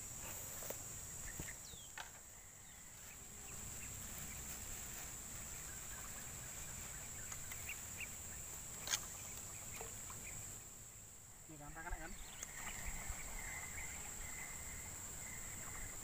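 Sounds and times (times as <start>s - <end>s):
high-pitched insect drone: 11.4s - 16.0s
faint bird chirps: 11.5s - 16.0s.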